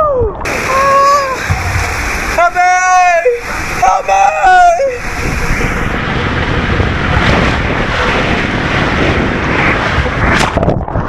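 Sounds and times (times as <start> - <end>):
rider sliding down water slide: 0.4 - 11.0
water rushing in slide tube: 0.4 - 11.0.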